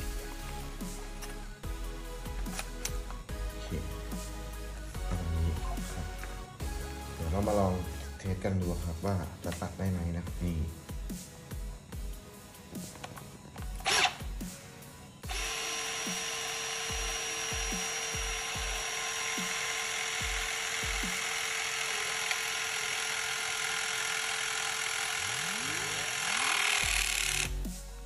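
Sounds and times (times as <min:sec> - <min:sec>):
hydraulic crimper pump whine: 0:13.8 - 0:14.2, 0:15.3 - 0:27.7.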